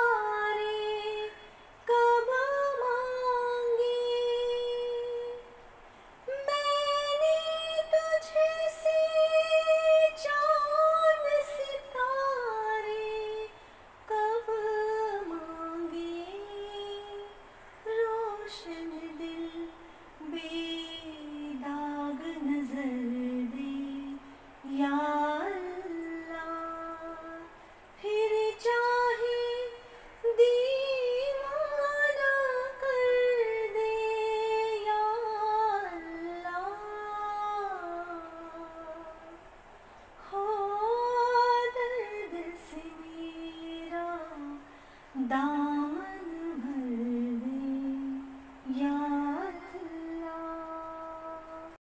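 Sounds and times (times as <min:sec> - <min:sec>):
woman singing: 0:00.0 - 0:05.6, 0:06.2 - 0:39.5, 0:40.2 - 0:51.8.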